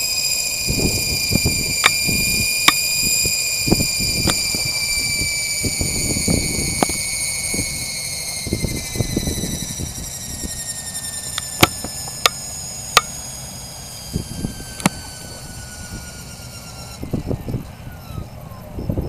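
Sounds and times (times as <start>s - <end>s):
helicopter motor whine spooling down: 0.0s - 19.0s
sharp clicks: 0.7s - 7.6s, 11.3s - 12.4s.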